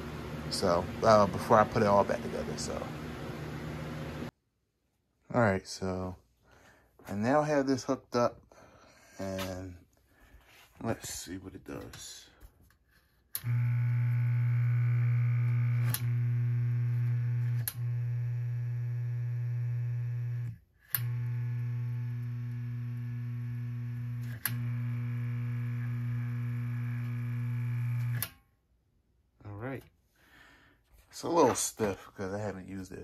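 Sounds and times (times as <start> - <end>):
motor switch click: 13.4 - 13.9, 15.5 - 16.7, 20.2 - 23.1, 24.2 - 28.4
electric motor humming: 13.4 - 28.3.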